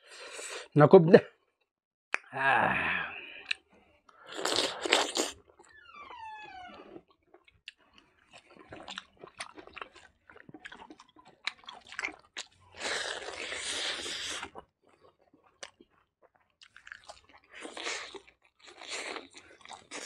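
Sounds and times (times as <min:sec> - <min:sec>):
wet chewing: 0:03.4 - 0:05.8, 0:06.7 - 0:20.0
food crunching: 0:06.9 - 0:20.0.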